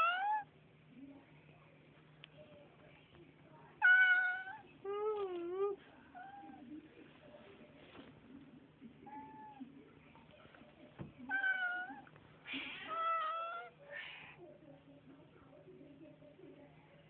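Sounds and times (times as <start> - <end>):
cat meowing: 0.0 - 0.5, 3.8 - 4.7, 11.3 - 12.1, 12.7 - 13.8.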